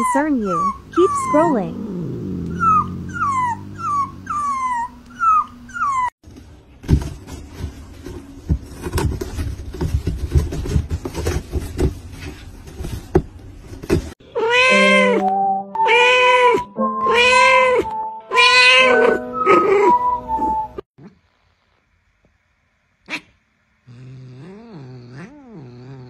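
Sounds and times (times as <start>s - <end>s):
whimpering squeaks: 0.0s - 1.7s, 2.5s - 6.2s, 14.4s - 20.8s
drawn-out pitched cries: 0.0s - 6.1s
cat clawing cardboard box: 6.8s - 14.1s.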